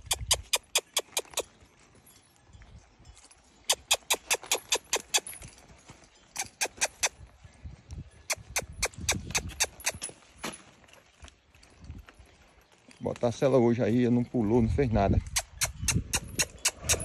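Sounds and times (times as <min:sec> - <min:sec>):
tongue clicks: 0:00.0 - 0:01.5, 0:03.7 - 0:05.3, 0:06.4 - 0:07.2, 0:08.2 - 0:10.1, 0:15.2 - 0:17.0.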